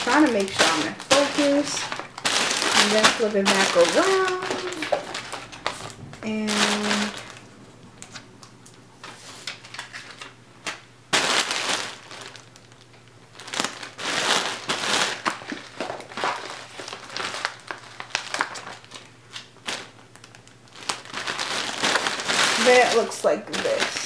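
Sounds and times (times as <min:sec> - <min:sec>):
plastic mailer bag crinkling: 0:00.0 - 0:24.0.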